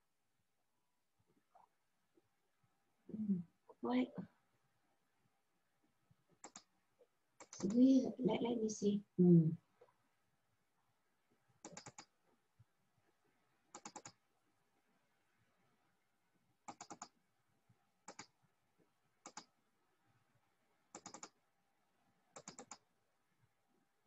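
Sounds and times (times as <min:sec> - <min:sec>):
faint computer clicking: 0:06.3 - 0:08.0, 0:11.6 - 0:12.2, 0:13.7 - 0:14.3, 0:16.6 - 0:17.2, 0:18.0 - 0:18.4, 0:19.2 - 0:19.6, 0:20.9 - 0:21.4, 0:22.3 - 0:22.9.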